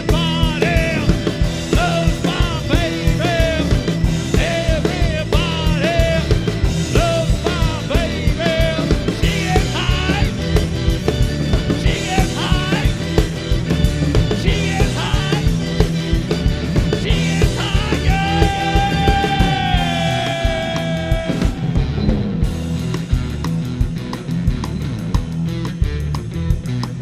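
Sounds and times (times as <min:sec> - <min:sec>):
person singing: 0:00.0 - 0:10.6, 0:11.6 - 0:13.4, 0:14.1 - 0:15.9, 0:16.8 - 0:21.9
drums: 0:00.0 - 0:27.0
electric guitar: 0:00.0 - 0:27.0
keyboard: 0:00.0 - 0:27.0.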